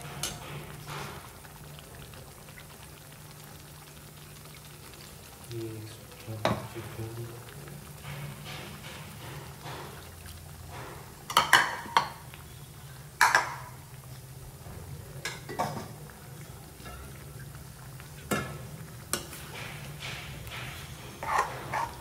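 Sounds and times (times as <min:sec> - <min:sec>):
spoon scraping and knocking pan: 0:00.0 - 0:01.4, 0:06.4 - 0:07.1, 0:07.9 - 0:12.3, 0:13.2 - 0:13.8, 0:18.2 - 0:22.0.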